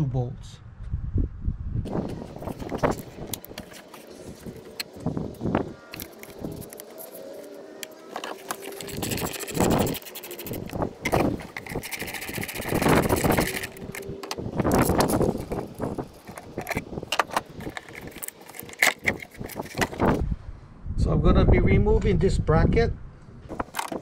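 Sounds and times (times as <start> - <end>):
socket ratchet clicking rapidly: 8.5 - 14.0.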